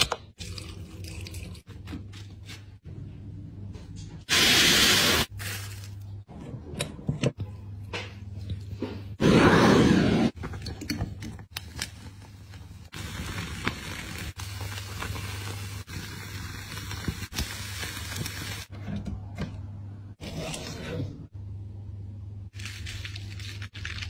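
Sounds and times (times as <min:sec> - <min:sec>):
meat sizzling over flames: 0:12.8 - 0:18.7.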